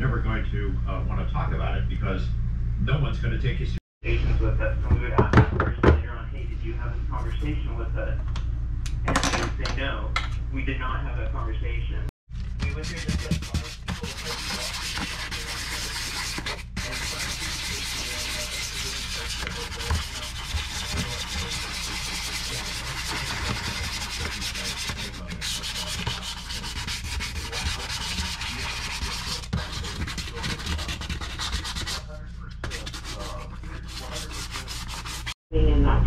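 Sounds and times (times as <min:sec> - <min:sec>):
sandpaper rubbing on sink: 0:12.6 - 0:35.4.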